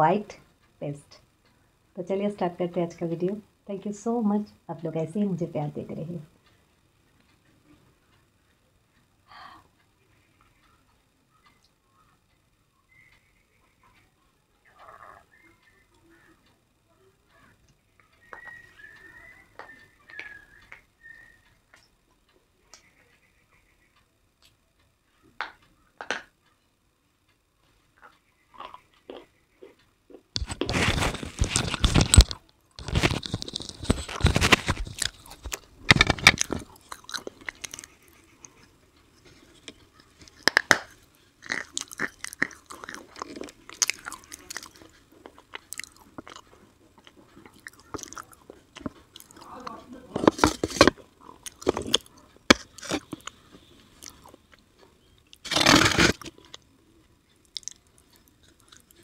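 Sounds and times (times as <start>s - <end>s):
crunching and chewing: 27.6s - 59.0s.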